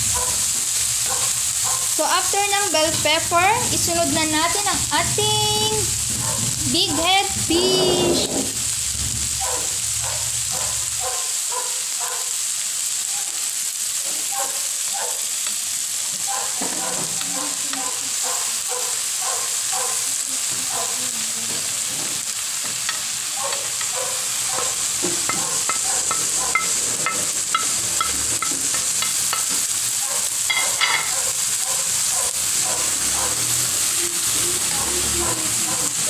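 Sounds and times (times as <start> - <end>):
vegetables sizzling in a pan: 0.0 - 36.0
spatula scraping a pan: 21.8 - 29.7.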